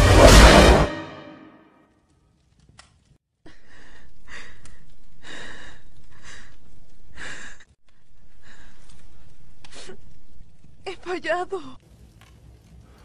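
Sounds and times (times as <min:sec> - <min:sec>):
steady low background: 0:00.0 - 0:01.7
woman breathing heavily: 0:03.5 - 0:10.0.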